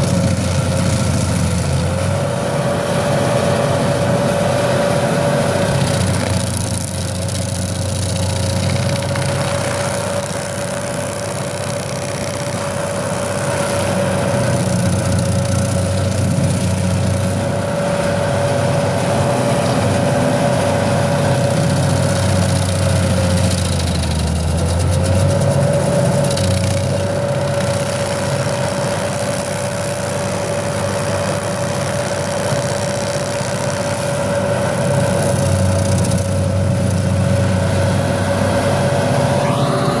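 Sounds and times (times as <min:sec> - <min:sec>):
stump grinder grinding stump: 0:00.0 - 0:40.0
high whine: 0:33.8 - 0:40.0.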